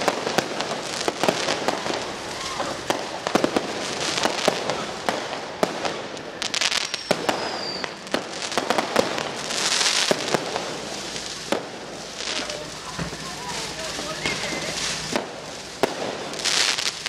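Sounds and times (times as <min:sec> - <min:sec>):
fireworks banging: 0:00.0 - 0:17.0
fireworks crackling hiss: 0:00.0 - 0:17.0
falling whistle: 0:06.8 - 0:08.0, 0:14.1 - 0:14.8.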